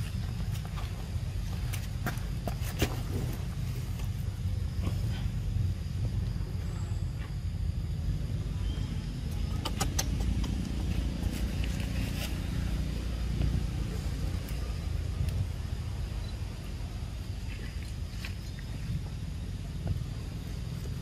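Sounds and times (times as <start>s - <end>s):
low outdoor rumble: 0.0s - 21.0s
sharp clicks: 9.5s - 10.8s.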